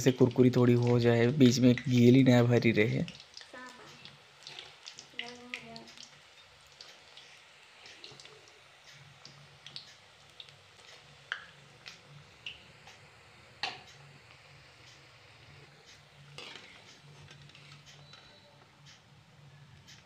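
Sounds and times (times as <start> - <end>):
fritters deep-frying in oil: 0.0 - 20.0
metal skimmer scraping pan: 16.3 - 18.1.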